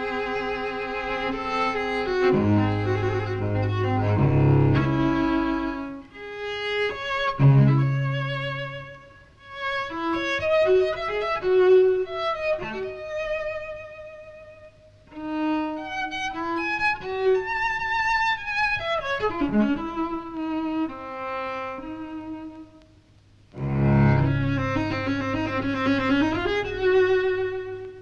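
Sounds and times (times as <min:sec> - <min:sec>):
solo cello bowed with vibrato: 0:00.0 - 0:22.8, 0:23.5 - 0:28.0.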